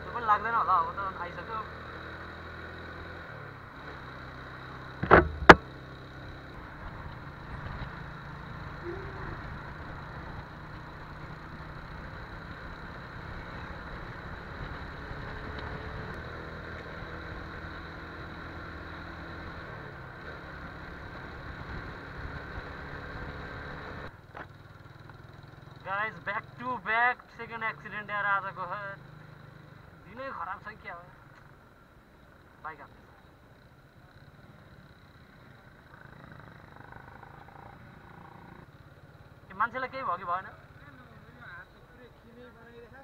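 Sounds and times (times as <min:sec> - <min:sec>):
motorcycle engine running: 0:00.0 - 0:43.0
road and wind noise: 0:00.0 - 0:43.0
sharp knocks: 0:05.0 - 0:05.7.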